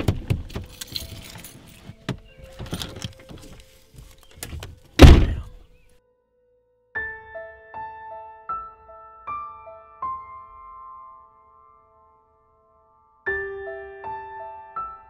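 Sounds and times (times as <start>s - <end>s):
clicks and rustling: 0.0s - 5.0s
car door opening: 0.0s - 5.5s
car door slamming: 4.5s - 5.5s.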